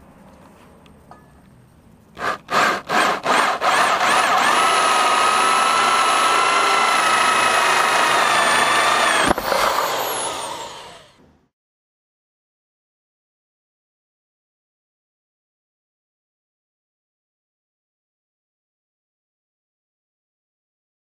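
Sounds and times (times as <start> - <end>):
electric drill whining: 2.2 - 11.2.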